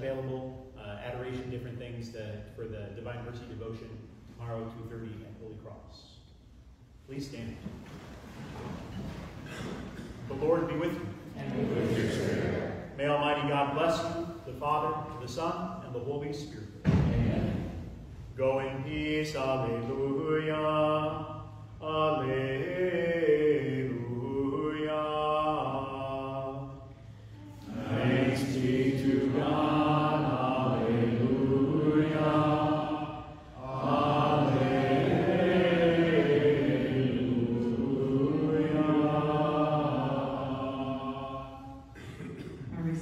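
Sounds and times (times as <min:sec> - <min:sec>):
voices singing a hymn: 0:10.3 - 0:16.2, 0:16.8 - 0:42.5.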